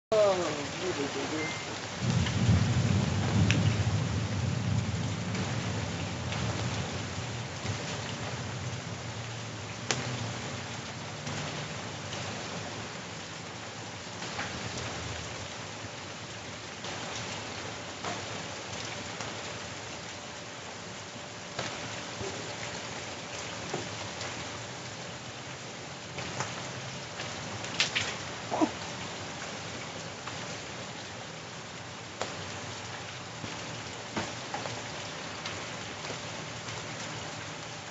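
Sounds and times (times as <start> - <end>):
heavy rain falling: 0.0 - 37.9
low thunder rumble: 2.0 - 10.7.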